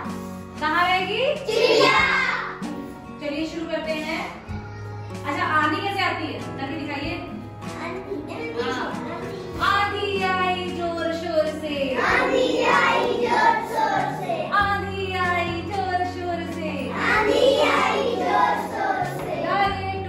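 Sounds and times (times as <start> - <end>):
children singing: 1.6 - 2.3, 12.0 - 14.6, 16.9 - 19.7.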